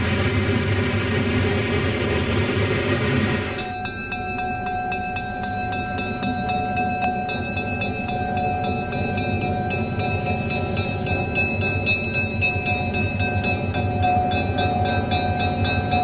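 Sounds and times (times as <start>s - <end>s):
diesel locomotive engine rumble: 0.0s - 16.0s
high steady ringing: 3.3s - 16.0s.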